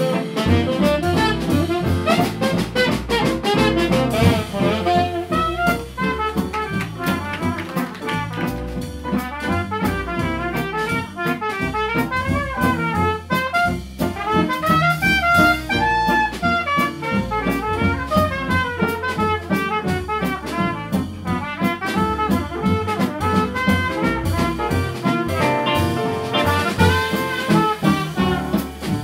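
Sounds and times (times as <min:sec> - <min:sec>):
saxophone: 0:00.0 - 0:07.8, 0:22.3 - 0:29.0
drum kit steady beat: 0:00.0 - 0:29.0
piano: 0:00.0 - 0:29.0
trumpet: 0:00.0 - 0:29.0
walking upright bass: 0:00.0 - 0:29.0
archtop guitar: 0:25.1 - 0:29.0.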